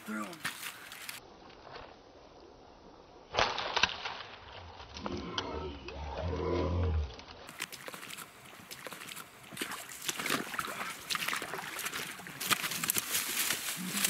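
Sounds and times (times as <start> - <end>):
dry leaves rustling and crackling: 9.6 - 14.0.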